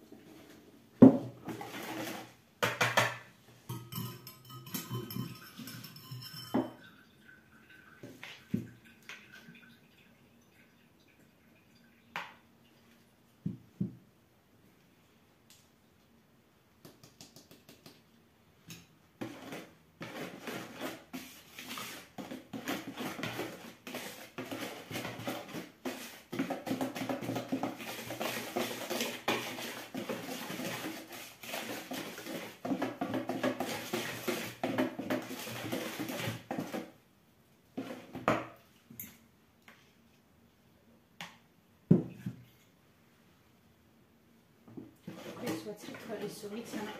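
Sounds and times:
flour sifter rattling and scraping: 1.4s - 2.4s, 19.2s - 37.0s.

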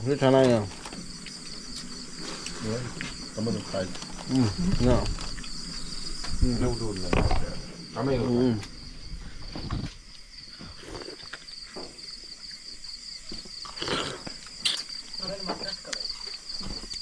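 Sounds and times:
voices: 0.0s - 8.9s, 13.8s - 16.8s
insects chirring: 0.0s - 17.0s.

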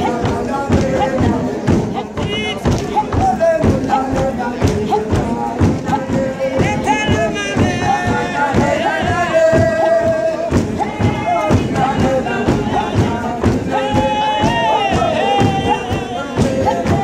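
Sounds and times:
steady percussive beat: 0.0s - 17.0s
voices singing worship music: 0.0s - 17.0s.

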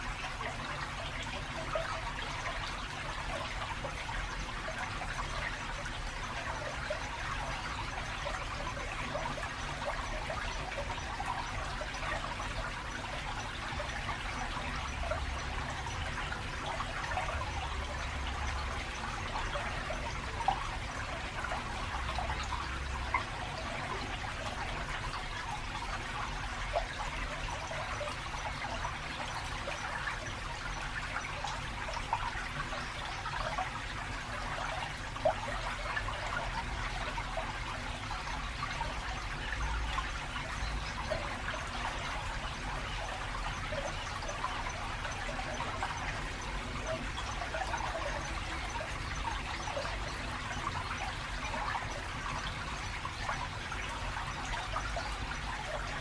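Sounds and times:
stream trickling over rocks: 0.0s - 56.0s
water plinks: 0.0s - 56.0s.

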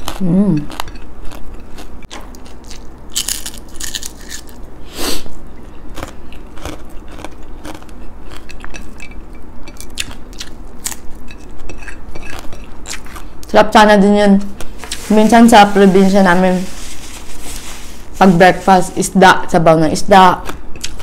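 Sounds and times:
chewing crunchy food: 0.0s - 4.7s, 5.6s - 13.6s, 20.4s - 21.0s.

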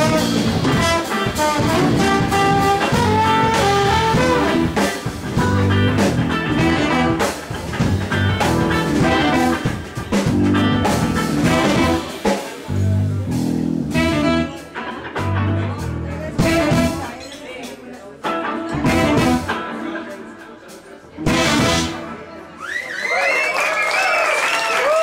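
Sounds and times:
low bass line: 0.0s - 12.1s, 12.7s - 14.5s, 15.2s - 17.0s, 18.7s - 19.5s
trombone: 0.0s - 17.1s, 18.7s - 19.8s, 21.2s - 22.4s
electric guitar: 0.0s - 17.2s, 18.2s - 20.5s, 21.1s - 22.4s
saxophone: 0.0s - 17.2s, 18.7s - 19.8s, 21.2s - 22.6s
drum kit: 0.0s - 22.4s.

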